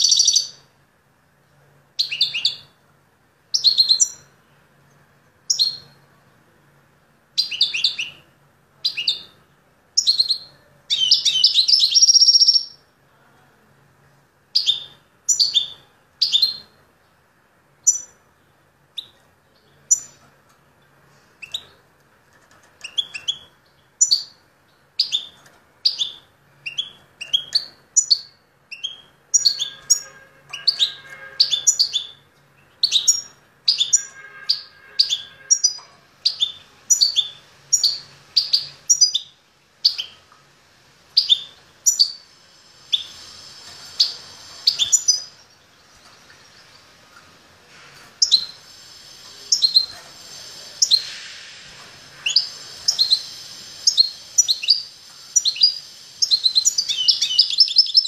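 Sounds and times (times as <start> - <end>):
bird chirping: 0.0 - 0.7, 2.0 - 2.8, 3.5 - 4.6, 5.4 - 6.1, 7.4 - 12.9, 14.5 - 17.2, 17.8 - 21.8, 22.4 - 40.4, 41.1 - 47.4, 48.0 - 58.0
songbird trill: 10.0 - 12.8, 52.2 - 58.0.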